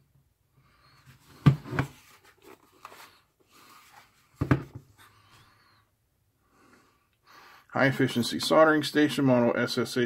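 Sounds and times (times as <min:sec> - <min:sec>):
plastic case knocking on wooden table: 0:04.4 - 0:04.8.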